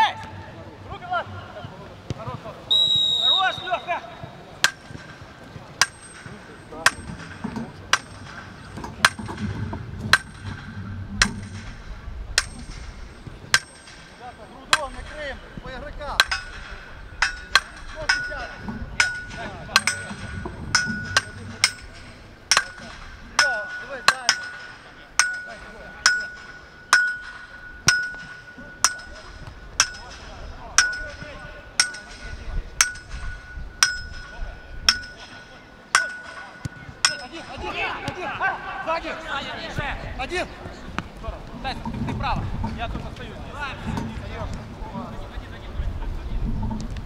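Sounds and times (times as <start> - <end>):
hammering clanks with ring: 4.6 - 5.2, 5.8 - 15.4, 16.2 - 37.7.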